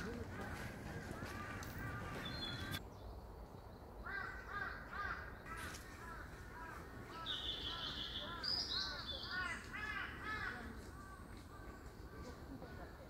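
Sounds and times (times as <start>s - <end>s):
birds calling harsh short notes: 1.2s - 2.8s.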